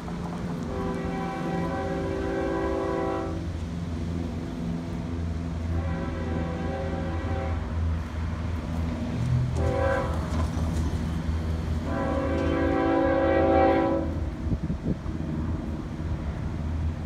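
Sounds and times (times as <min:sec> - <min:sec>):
train rumble: 0:00.0 - 0:17.0
locomotive air horn blasts: 0:00.6 - 0:03.5, 0:05.6 - 0:08.0, 0:09.5 - 0:10.4, 0:11.8 - 0:14.4.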